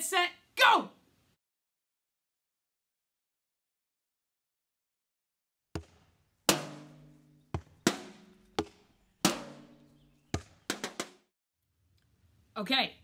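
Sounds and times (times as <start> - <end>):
drum hits: 5.8 - 11.3.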